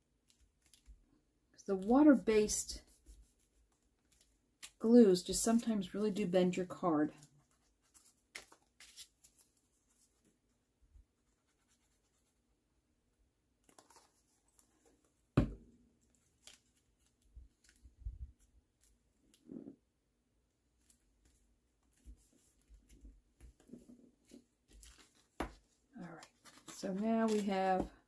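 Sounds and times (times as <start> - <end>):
paper rustling and tapping: 21.2 - 28.0.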